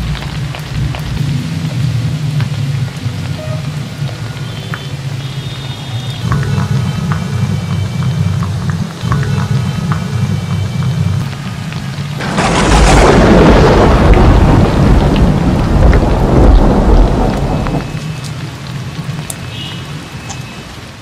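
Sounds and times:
heavy rain: 0.0 - 21.0
rolling thunderclap: 12.2 - 18.0.

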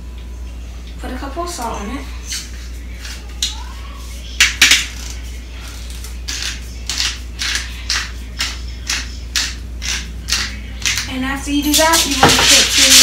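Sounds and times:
seasoning container rattling: 11.6 - 13.0.

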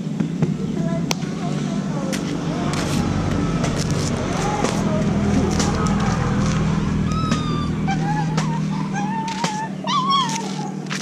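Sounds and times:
steady low hum: 0.0 - 11.0
young dog whining: 6.8 - 11.0.

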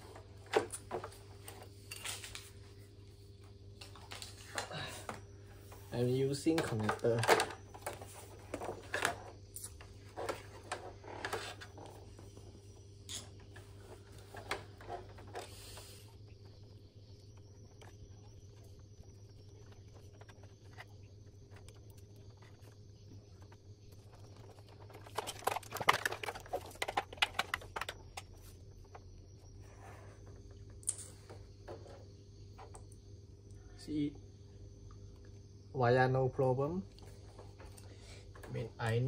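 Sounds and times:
low steady hum: 0.0 - 39.0
clicks and rustles: 17.3 - 29.0.

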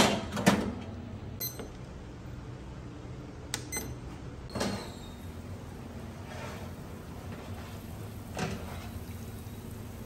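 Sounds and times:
kitchen timer beep: 1.4 - 1.8, 3.7 - 4.0.

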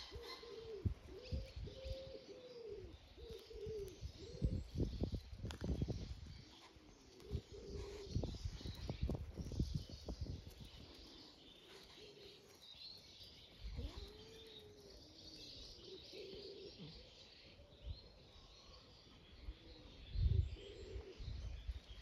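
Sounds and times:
birds chirping: 0.0 - 22.0
low bird calls: 0.0 - 22.0.

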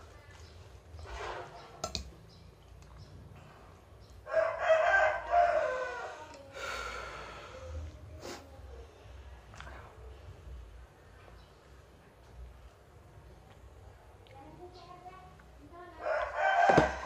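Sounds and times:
rooster crowing: 4.2 - 6.4, 16.0 - 17.0.

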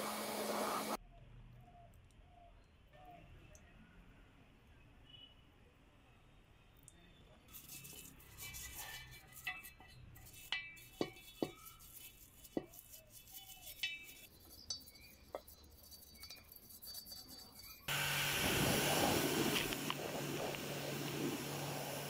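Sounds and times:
brush clinking on metal rim: 7.5 - 17.9
brush scrubbing a metal wheel: 7.5 - 22.0
water spray hitting wheel: 17.9 - 22.0.

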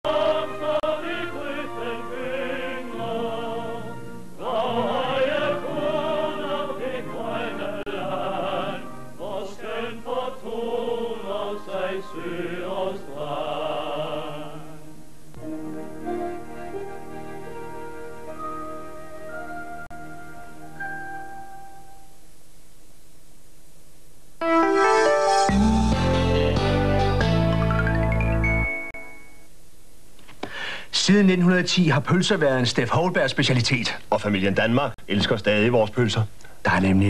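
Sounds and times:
operatic singing voice: 0.0 - 14.9
orchestral accompaniment: 15.4 - 22.0, 24.4 - 29.0.

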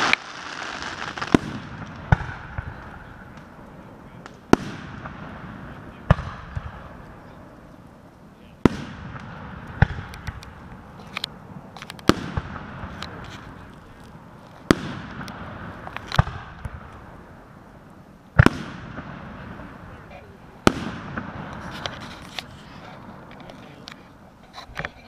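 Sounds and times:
fireworks bangs with rumble: 0.0 - 7.9, 8.6 - 17.6, 18.3 - 24.2
fireworks crackles: 0.0 - 25.0.

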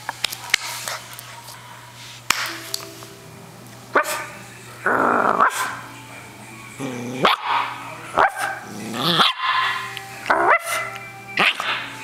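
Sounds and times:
puppy barking: 4.0 - 4.3, 5.4 - 5.8, 7.2 - 9.9, 10.5 - 11.8.

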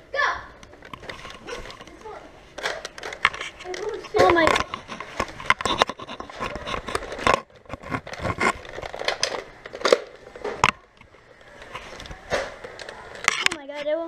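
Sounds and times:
toy blaster rustling: 0.9 - 10.2.

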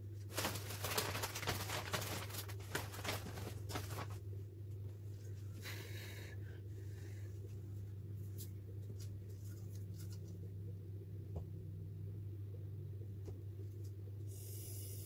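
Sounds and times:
low equipment hum: 0.0 - 15.0
airy hiss: 14.3 - 15.0.

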